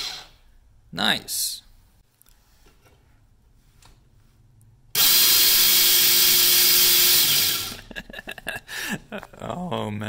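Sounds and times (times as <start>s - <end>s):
electric chainsaw whirring: 0.0s - 0.4s, 5.0s - 7.9s.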